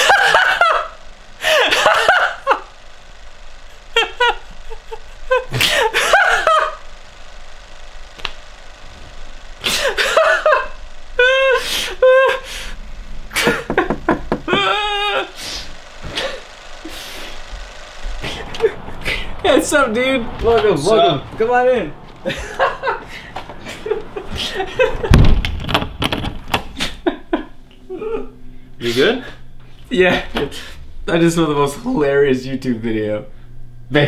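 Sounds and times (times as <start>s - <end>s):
man laughing hard: 0.0s - 2.8s, 3.8s - 6.8s, 9.6s - 15.4s, 22.2s - 25.2s, 26.8s - 28.4s.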